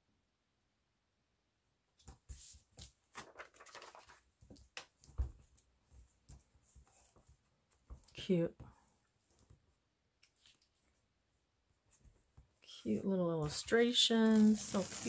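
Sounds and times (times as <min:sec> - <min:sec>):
book pages turning: 0:02.0 - 0:05.6, 0:13.4 - 0:15.0.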